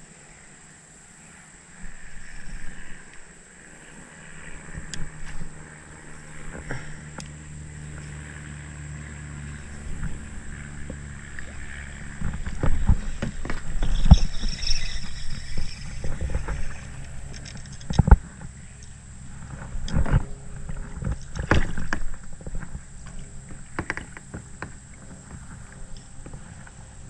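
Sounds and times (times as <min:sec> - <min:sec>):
low steady rumble: 0:00.0 - 0:27.0
fishing rod handling noise: 0:12.2 - 0:19.0.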